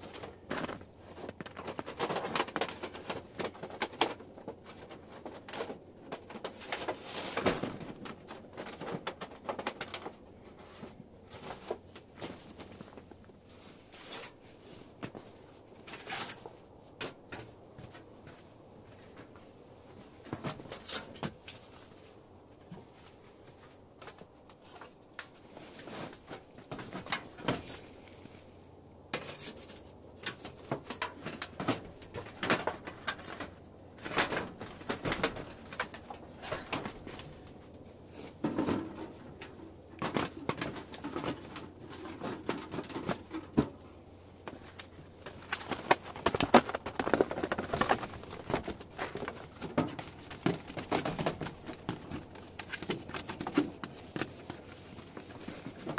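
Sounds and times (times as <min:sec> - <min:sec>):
foil sheets crinkling: 0:00.0 - 0:13.2, 0:29.2 - 0:55.9.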